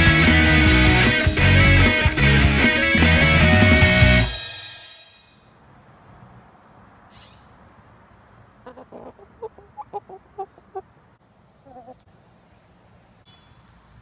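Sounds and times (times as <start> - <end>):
chicken clucking: 8.6 - 12.1.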